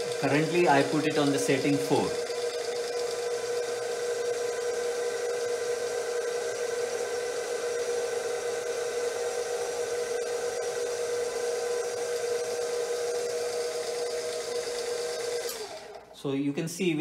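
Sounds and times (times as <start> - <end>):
stand mixer motor whining: 0.0 - 16.2.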